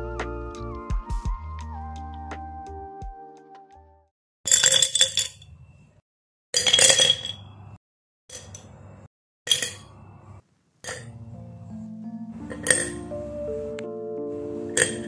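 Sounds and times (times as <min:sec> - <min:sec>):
pens clinking into glass jars: 0:04.5 - 0:05.4, 0:06.6 - 0:07.5, 0:08.3 - 0:08.7, 0:09.5 - 0:10.0, 0:10.8 - 0:11.2, 0:12.5 - 0:13.1, 0:14.7 - 0:15.0.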